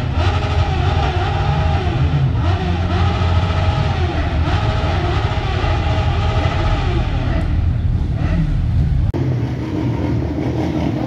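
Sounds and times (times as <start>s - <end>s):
motorcycle engines revving: 0.0s - 11.0s.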